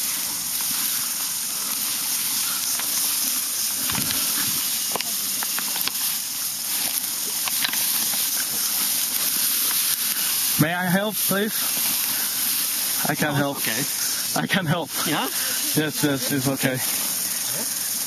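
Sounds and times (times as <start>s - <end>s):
tall grass rustling and swishing: 0.0s - 18.0s
small clicks and knocks: 6.8s - 8.3s.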